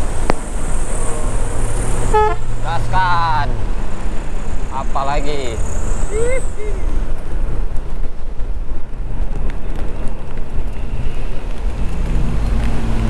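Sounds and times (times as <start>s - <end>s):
bus rumbling: 0.0s - 13.0s.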